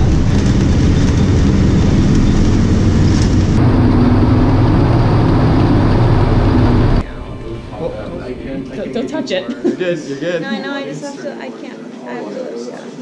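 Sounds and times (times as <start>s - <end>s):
snow vehicle engine drone: 0.0s - 7.0s.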